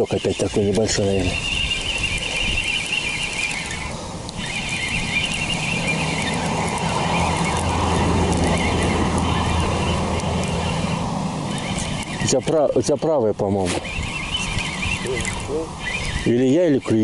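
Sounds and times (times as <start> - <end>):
low engine hum: 0.0 - 16.3.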